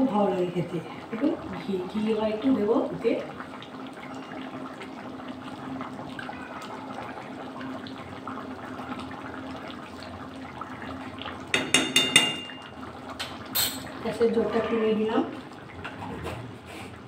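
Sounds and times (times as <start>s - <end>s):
curry bubbling and sloshing: 0.0s - 11.6s
spoon knocking against pan: 11.5s - 13.8s.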